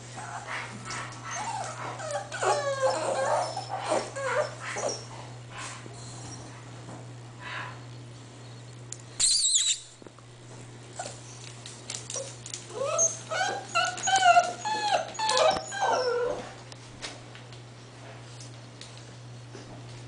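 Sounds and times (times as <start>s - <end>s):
puppies whining: 0.1s - 5.1s, 12.2s - 16.6s
high puppy squeal: 1.3s - 5.1s, 9.2s - 9.9s, 12.8s - 16.4s
puppy whimpers: 1.3s - 5.1s, 12.2s - 16.5s.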